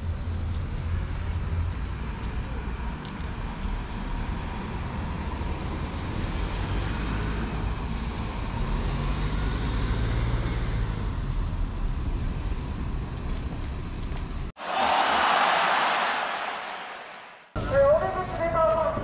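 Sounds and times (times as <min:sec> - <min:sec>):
road noise: 0:00.0 - 0:14.6.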